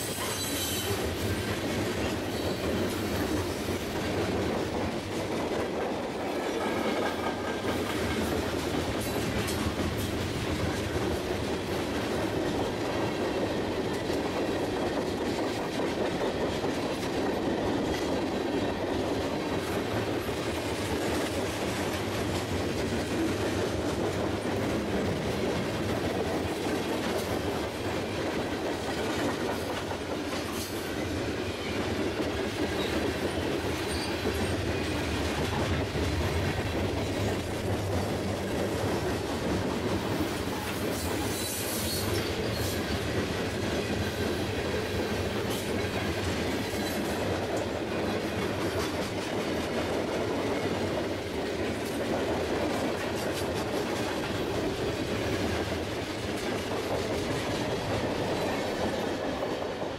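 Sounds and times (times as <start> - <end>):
high wheel screeches: 0.0 - 1.0
clickety-clack over rail joints: 0.0 - 59.9
train wheels rumbling on rails: 0.0 - 59.9.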